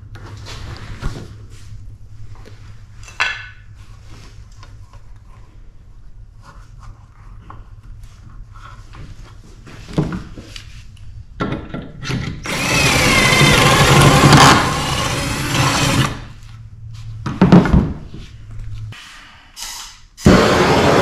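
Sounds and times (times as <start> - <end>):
cordless drill drilling into wood: 12.4 - 16.2, 20.3 - 21.0.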